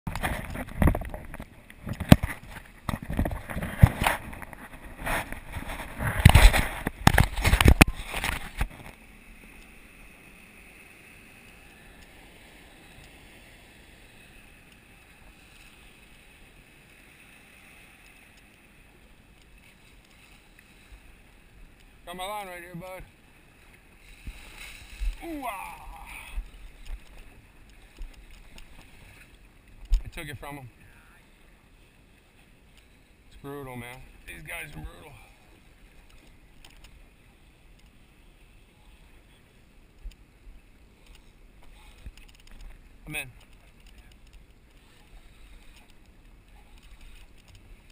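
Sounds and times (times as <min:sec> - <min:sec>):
wind: 0:00.0 - 0:47.9
water noise: 0:00.1 - 0:47.9
faint ticks: 0:08.6 - 0:09.8, 0:11.4 - 0:13.6, 0:14.3 - 0:22.0, 0:25.9 - 0:30.6, 0:32.6 - 0:38.2, 0:38.8 - 0:47.9.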